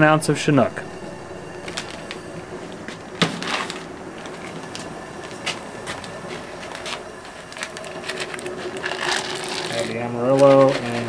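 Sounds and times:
gas burner rushing: 0.0s - 11.0s
foil packets crinkling: 3.2s - 11.0s.

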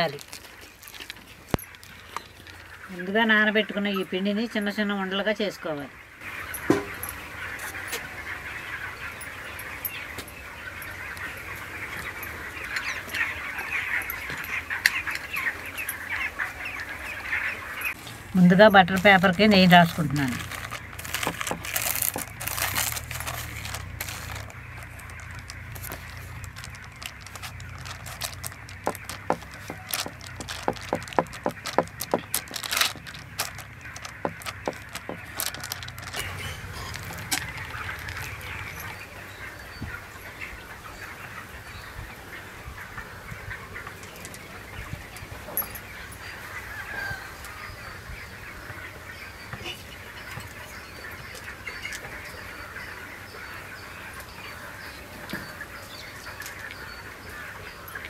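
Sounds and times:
birds calling: 0.0s - 58.0s
fingers patting dough: 27.3s - 36.2s.

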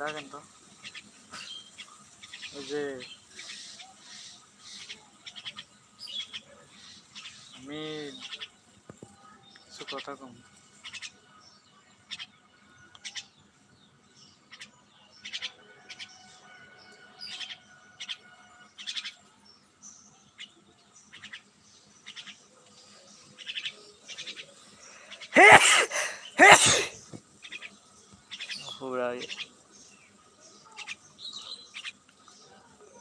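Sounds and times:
loud harsh bird calls: 0.0s - 8.7s, 9.7s - 12.4s, 14.2s - 19.2s, 23.2s - 32.0s
myna chirping: 0.0s - 16.2s, 17.2s - 25.4s, 26.0s - 33.0s.

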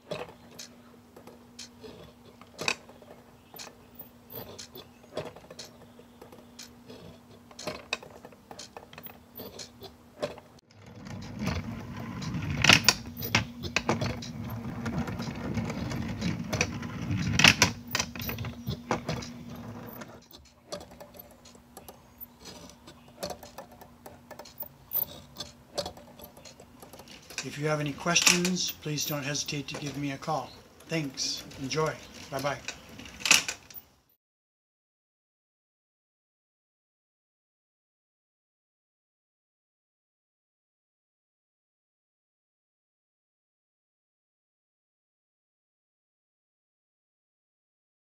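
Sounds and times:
mechanism clicking and clacking: 0.0s - 33.9s
motor hum: 0.0s - 34.1s.

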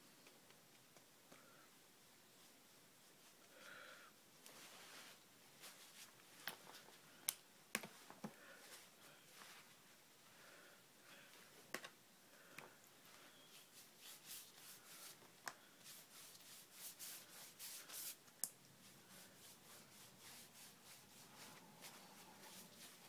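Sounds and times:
brush rubbing over wet paper: 13.4s - 23.0s.

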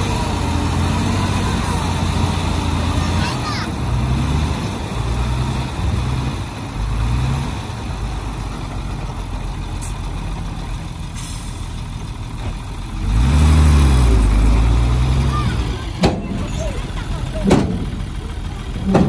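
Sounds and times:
diesel engines revving: 0.0s - 19.0s.

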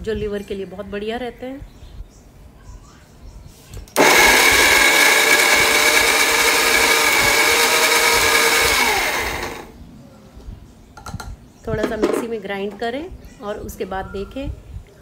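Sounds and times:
mixer grinder motor whining: 4.0s - 9.7s.

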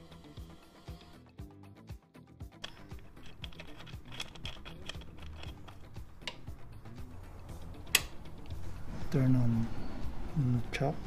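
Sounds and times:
faint background music: 0.0s - 11.0s
hands clicking and tapping on motorcycle: 3.5s - 6.5s, 7.9s - 8.2s
ignition key switch click: 7.9s - 8.2s.

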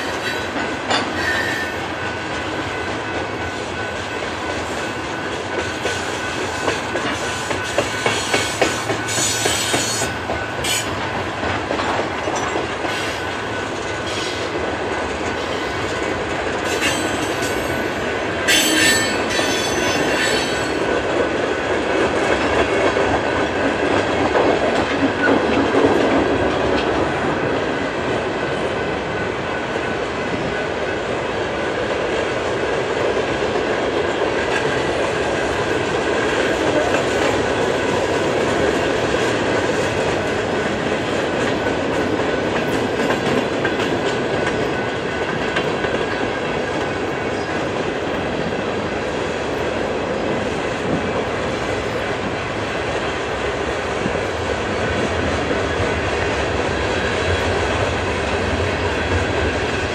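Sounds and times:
freight train wheels rolling: 0.0s - 59.9s
high wheel squeals: 1.2s - 1.8s.

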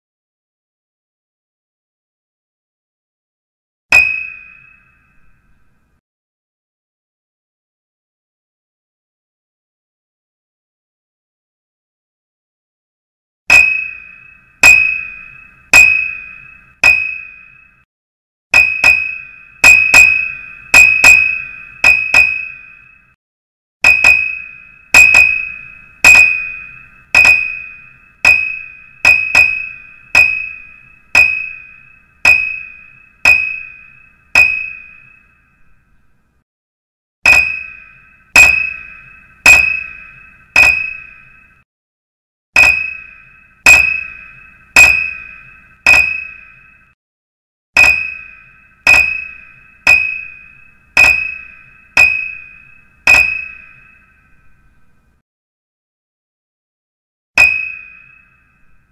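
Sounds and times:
bell-like dings: 3.9s - 5.7s, 13.5s - 17.9s, 18.6s - 23.2s, 23.8s - 35.8s, 37.3s - 41.6s, 42.6s - 47.0s, 47.8s - 54.8s, 57.4s - 58.9s.

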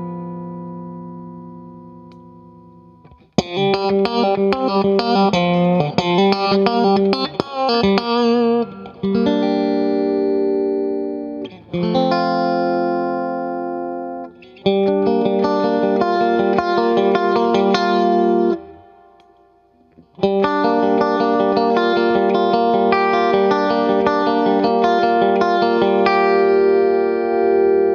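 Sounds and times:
electric guitar playing: 0.0s - 27.9s.

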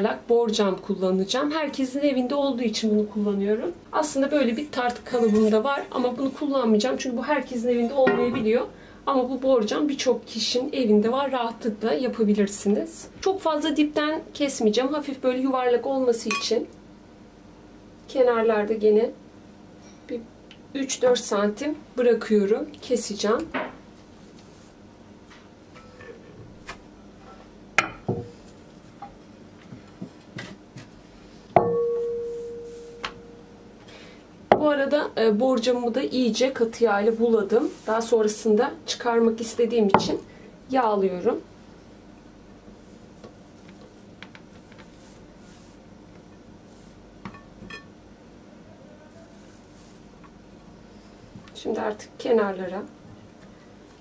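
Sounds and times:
glass knock ringing: 31.6s - 33.3s.

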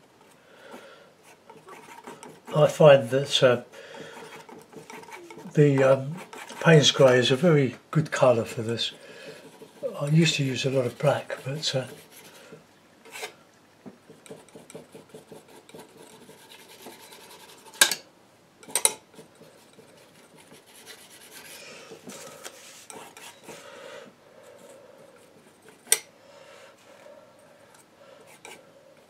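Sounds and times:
palette knife scraping paint: 1.2s - 3.1s, 3.9s - 7.1s, 8.5s - 13.3s, 14.1s - 17.8s, 19.1s - 23.6s, 28.3s - 28.6s.

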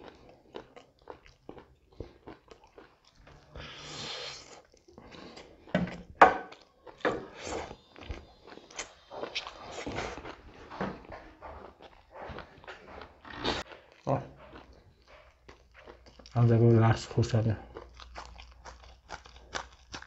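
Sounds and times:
man chewing and lip-smacking: 0.0s - 20.0s.

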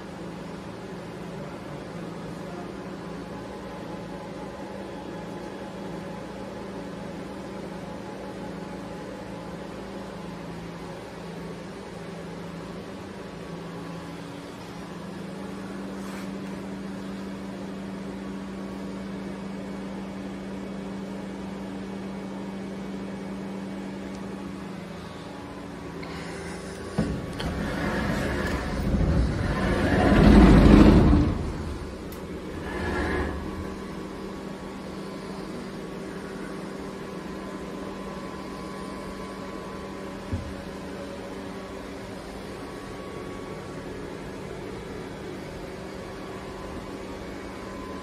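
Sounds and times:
lathe electrical hum: 0.0s - 48.0s
higher electrical tone: 24.5s - 48.0s.

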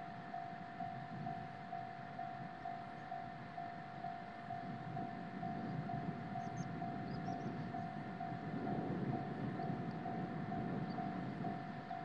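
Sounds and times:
level-crossing alarm ringing: 0.0s - 12.0s.

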